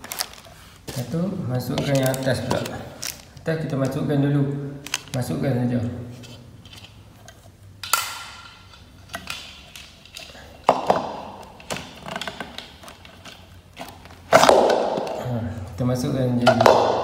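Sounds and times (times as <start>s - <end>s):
plastic covers knocking together: 0.0s - 4.0s, 10.6s - 15.2s, 16.5s - 17.0s.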